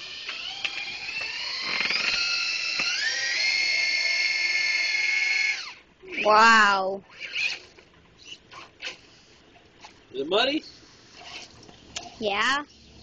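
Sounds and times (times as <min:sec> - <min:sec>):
toy truck motor whining: 0:00.0 - 0:09.4.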